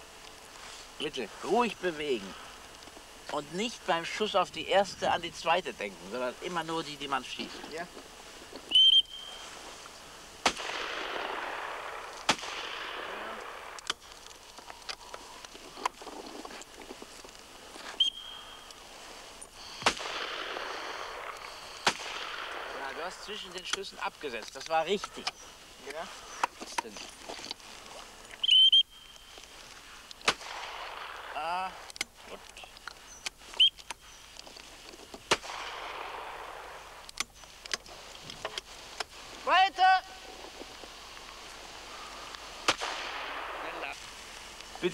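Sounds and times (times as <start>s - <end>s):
shotgun shots echoing: 10.4s - 13.8s, 19.8s - 23.1s, 30.2s - 31.4s, 35.3s - 36.7s, 42.6s - 43.8s
faint gunshot cracks: 10.4s - 14.0s, 19.8s - 22.9s, 30.2s - 31.3s, 35.3s - 36.7s, 42.6s - 43.8s.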